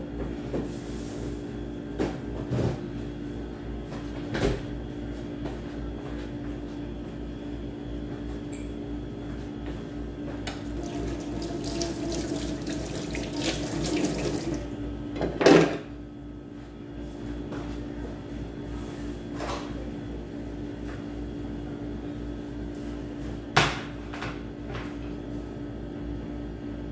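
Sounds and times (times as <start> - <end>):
tap water running into sink: 10.6 - 14.8.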